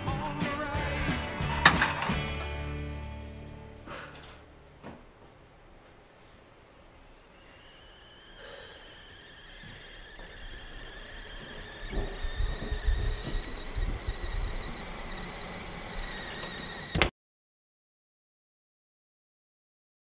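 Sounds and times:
kettle whistling: 7.2s - 17.1s.

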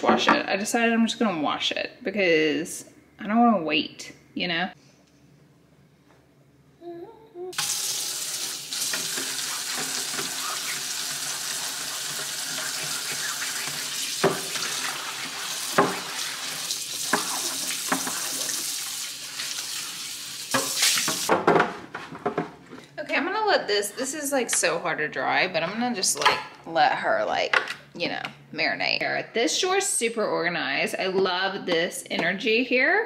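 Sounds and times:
tap running into a sink: 7.6s - 18.7s, 20.5s - 21.4s
hand scrubbing: 9.1s - 18.6s.

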